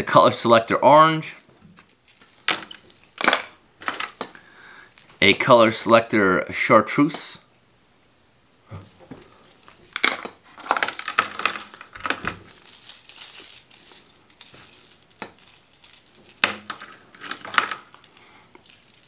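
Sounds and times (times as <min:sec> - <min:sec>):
fishing lures clinking and rattling: 0:01.4 - 0:05.1, 0:08.8 - 0:19.0.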